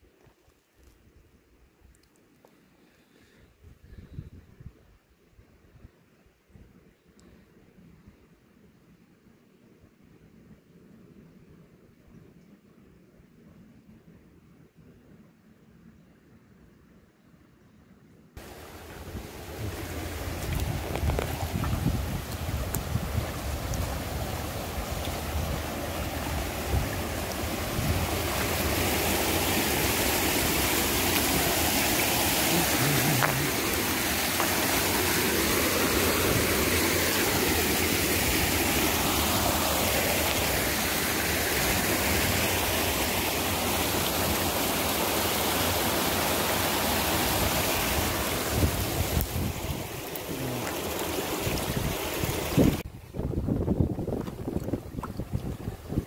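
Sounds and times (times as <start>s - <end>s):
stream running over stones: 18.4s - 56.0s.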